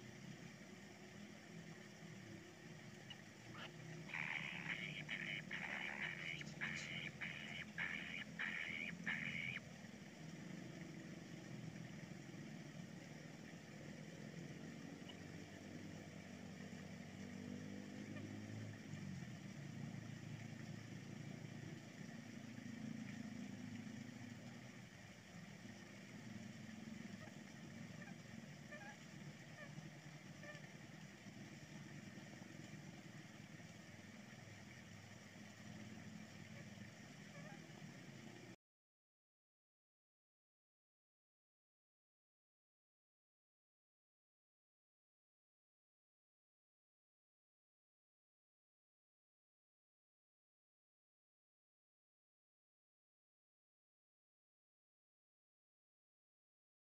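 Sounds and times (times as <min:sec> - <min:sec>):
faint low engine drone: 0:00.0 - 0:38.6.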